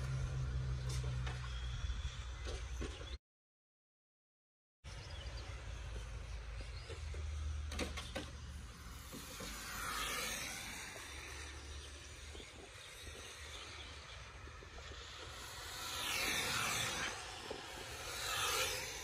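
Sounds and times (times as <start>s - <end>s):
electric toy cars whining: 5.6s - 19.0s.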